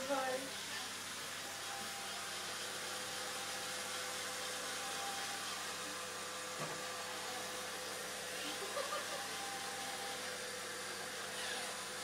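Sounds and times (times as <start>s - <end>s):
robot vacuum whirring: 1.5s - 12.0s.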